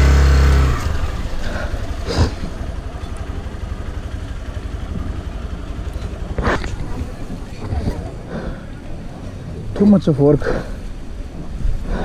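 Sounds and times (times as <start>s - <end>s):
loud low drone: 0.0s - 6.7s
motorcycle engine idling: 0.0s - 9.3s.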